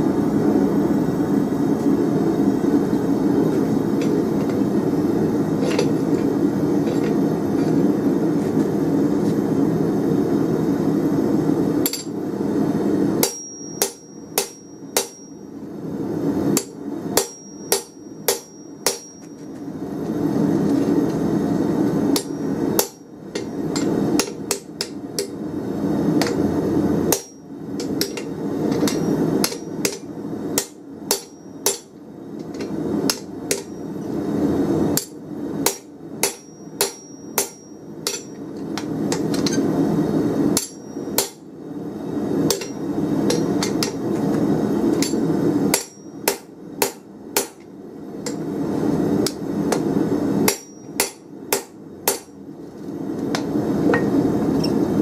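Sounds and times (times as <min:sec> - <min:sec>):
hammer striking metal: 0:11.8 - 0:12.2, 0:13.2 - 0:15.4, 0:16.6 - 0:19.5, 0:22.2 - 0:25.4, 0:27.1 - 0:31.9, 0:35.0 - 0:39.6, 0:40.6 - 0:41.4, 0:42.5 - 0:44.0, 0:45.0 - 0:47.6, 0:50.5 - 0:52.4.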